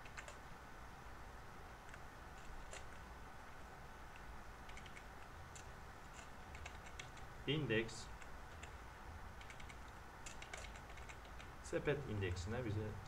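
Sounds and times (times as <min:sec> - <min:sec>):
computer keyboard keystrokes: 0:00.0 - 0:00.4, 0:01.9 - 0:03.0, 0:04.6 - 0:07.3, 0:09.4 - 0:11.5
low steady hum: 0:00.0 - 0:13.0.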